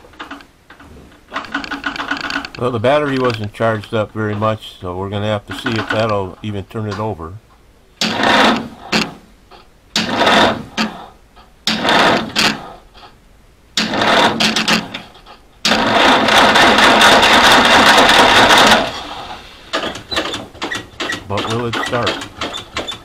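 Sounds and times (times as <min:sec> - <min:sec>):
starter motor cranking engine: 0:01.3 - 0:04.5, 0:05.5 - 0:06.3, 0:08.0 - 0:09.2, 0:09.9 - 0:11.1, 0:11.7 - 0:12.9, 0:13.8 - 0:23.0.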